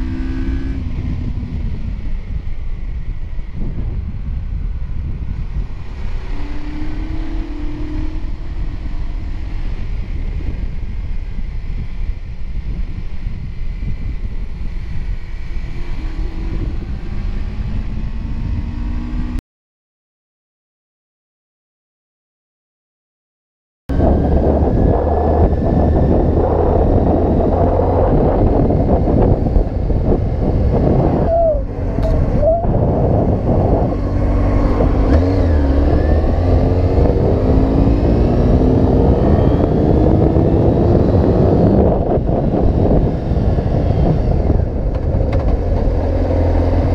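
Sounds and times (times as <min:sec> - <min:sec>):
motorcycle engine: 0:00.0 - 0:12.1, 0:23.9 - 0:46.9
wind buffeting microphone: 0:00.0 - 0:19.4, 0:23.9 - 0:46.9.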